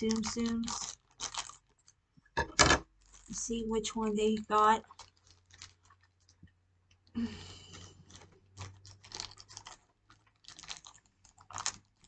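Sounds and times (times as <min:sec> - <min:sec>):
packaging crinkling and tearing: 0:00.0 - 0:02.0, 0:02.9 - 0:03.4, 0:04.3 - 0:07.1, 0:07.7 - 0:12.0.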